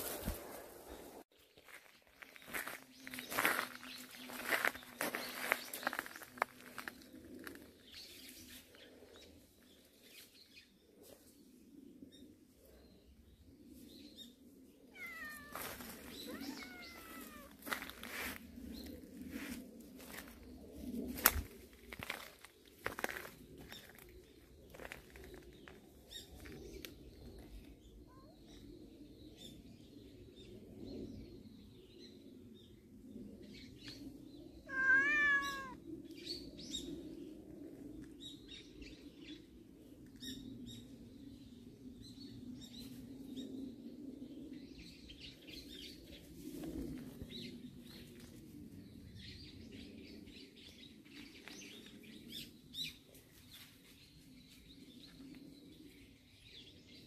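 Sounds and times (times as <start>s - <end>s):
cat meowing: 15.0s - 15.6s, 16.2s - 17.6s, 34.7s - 35.8s.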